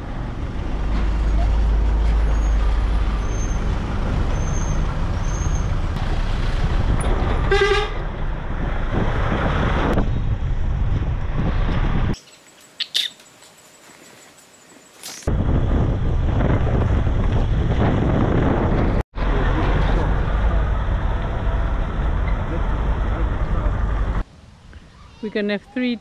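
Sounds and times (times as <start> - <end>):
road and wind rumble: 0.0 - 26.0
vehicle horn toot: 7.5 - 8.0.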